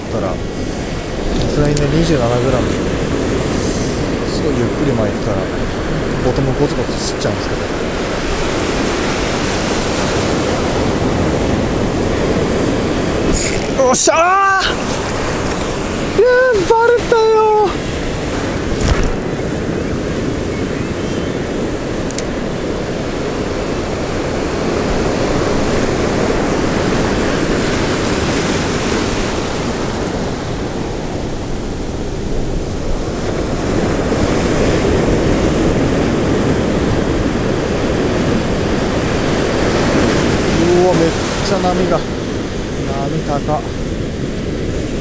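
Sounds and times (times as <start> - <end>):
ocean surf breaking on beach: 0.0 - 45.0.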